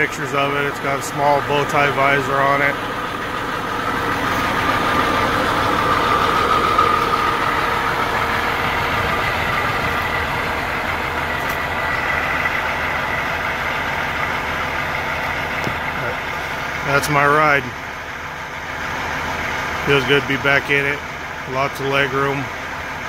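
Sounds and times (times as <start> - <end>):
diesel truck engine idling: 0.0 - 23.0.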